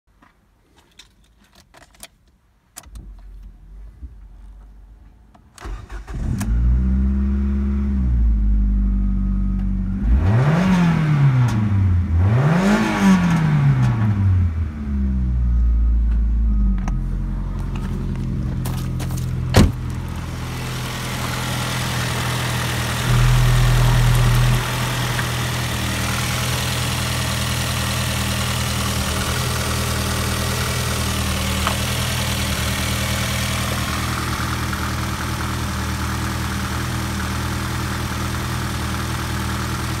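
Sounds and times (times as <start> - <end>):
car engine revving and idling: 5.6 - 40.0.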